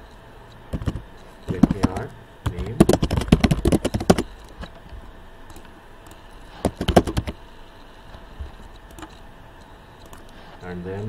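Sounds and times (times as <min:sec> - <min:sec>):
computer keyboard typing: 0:00.7 - 0:04.8, 0:05.5 - 0:07.4, 0:08.7 - 0:09.2, 0:10.0 - 0:10.4.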